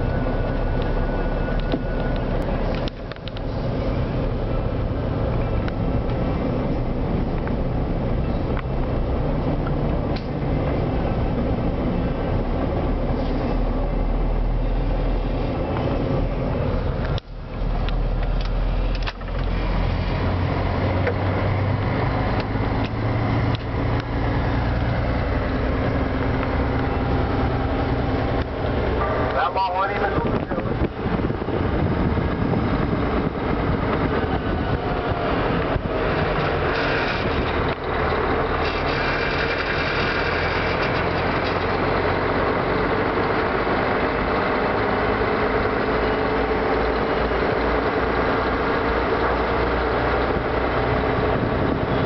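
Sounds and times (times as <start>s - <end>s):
road noise: 0.0s - 52.0s
truck engine hum: 0.0s - 52.0s.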